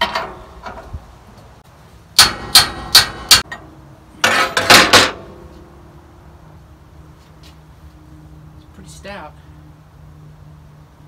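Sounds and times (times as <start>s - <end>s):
metal clanks: 0.0s - 0.9s, 2.2s - 5.4s
hammer striking metal wrench: 2.2s - 3.6s.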